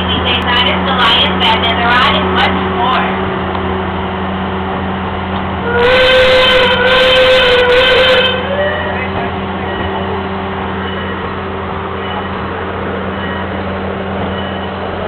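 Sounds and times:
train running with low hum: 0:00.0 - 0:15.0
train whistle: 0:05.6 - 0:09.0.

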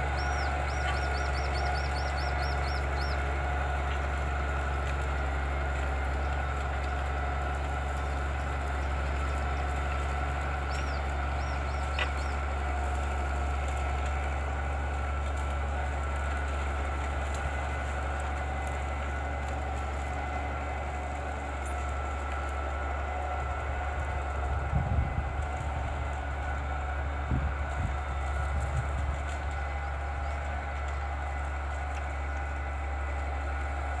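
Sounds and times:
tractor diesel engine running: 0:00.0 - 0:34.0
bird chirping: 0:00.1 - 0:03.2, 0:10.7 - 0:12.4.

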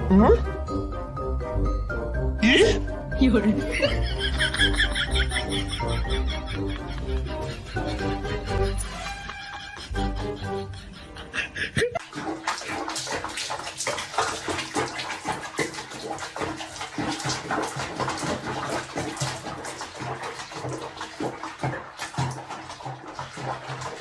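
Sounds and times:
water sloshing in plastic basin: 0:12.0 - 0:24.0.

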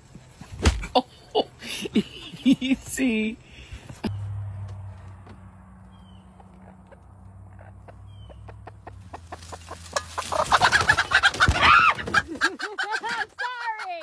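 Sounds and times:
fowl calling: 0:06.1 - 0:14.0.

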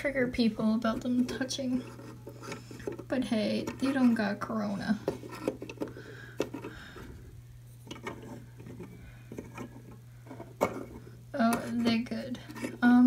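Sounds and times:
plastic figures clicking and knocking: 0:07.8 - 0:11.0.

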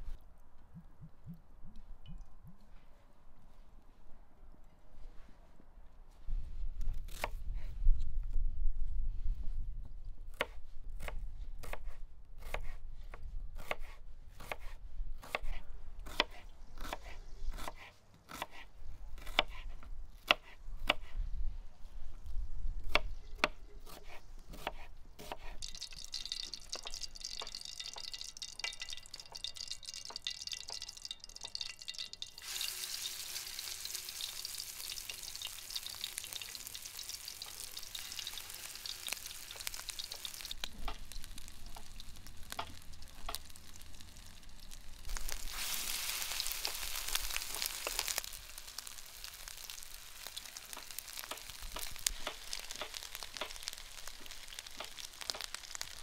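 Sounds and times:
oil sizzling in frying pan: 0:25.6 - 0:56.0.

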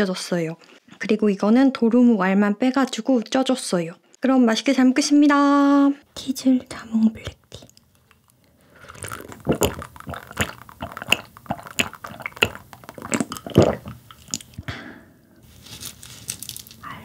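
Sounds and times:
gulping a drink: 0:07.2 - 0:14.7.

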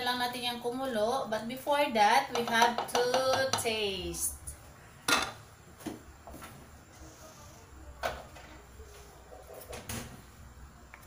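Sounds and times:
utensils knocking on metal pot: 0:02.3 - 0:03.7.

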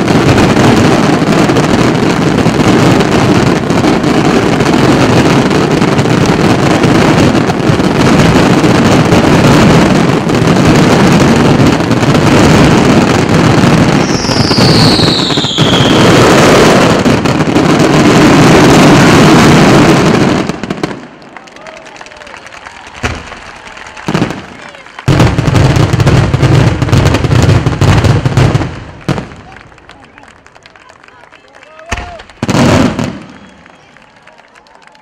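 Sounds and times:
fireworks bursting with crackle: 0:00.0 - 0:35.0
falling firework whistle: 0:13.7 - 0:21.0, 0:22.6 - 0:25.4, 0:31.9 - 0:35.0.

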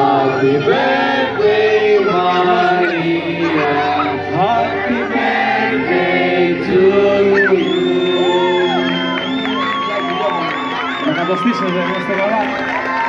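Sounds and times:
crowd singing birthday song: 0:00.0 - 0:09.6
high whistle-like tone: 0:07.3 - 0:12.3.

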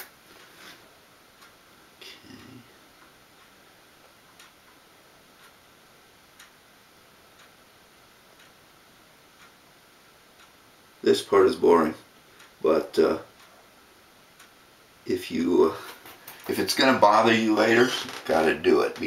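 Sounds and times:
clock ticking faintly: 0:01.3 - 0:19.0.

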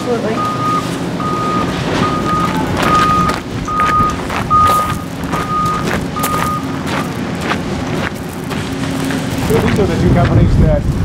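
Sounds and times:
forklift reversing alarm beeping: 0:00.0 - 0:07.2
engine running: 0:00.0 - 0:11.0.

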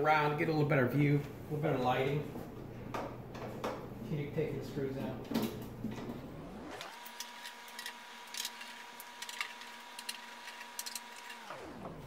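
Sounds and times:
screwdriver clicking on metal: 0:06.9 - 0:11.5.

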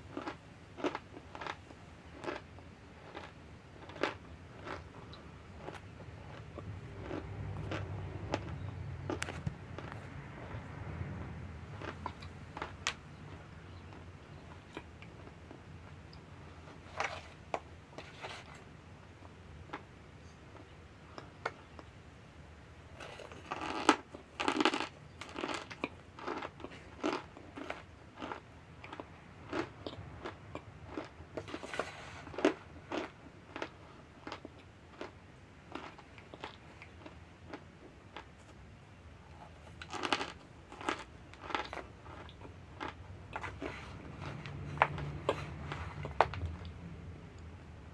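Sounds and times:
person chewing crunchily: 0:00.0 - 0:22.0, 0:22.9 - 0:38.6, 0:39.3 - 0:46.8
faint low hum: 0:00.0 - 0:47.9.

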